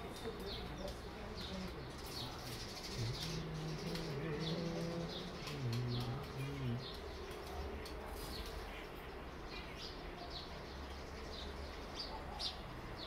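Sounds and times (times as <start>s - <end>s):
sparrow chirping: 0.0s - 13.0s.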